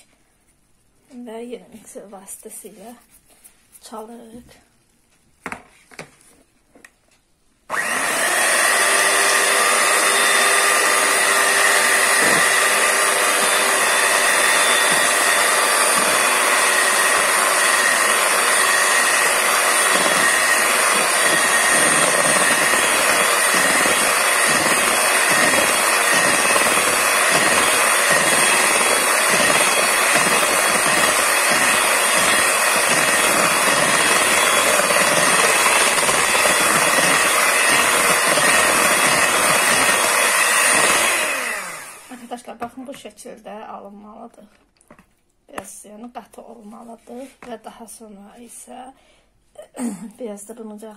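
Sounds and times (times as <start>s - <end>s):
electric hand mixer running: 7.7s - 42.3s.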